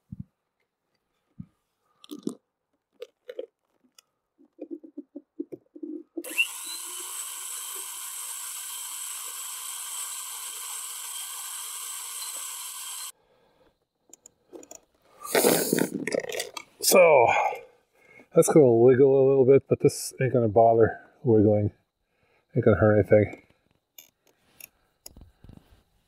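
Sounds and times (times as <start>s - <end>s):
electric drill whining and drilling: 6.2s - 13.2s.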